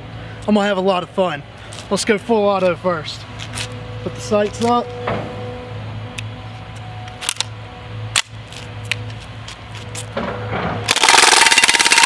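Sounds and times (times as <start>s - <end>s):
low hum of backhoe engines: 0.0s - 12.0s
bb gun clicks: 10.9s - 12.0s.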